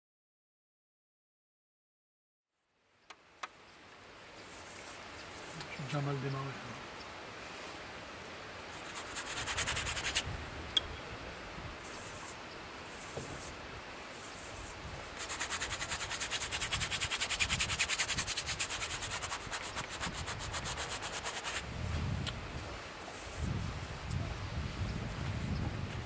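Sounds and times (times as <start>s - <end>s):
paintbrush scrubbing on canvas: 4.4s - 5.7s, 8.7s - 10.2s, 11.8s - 13.6s, 14.2s - 21.6s.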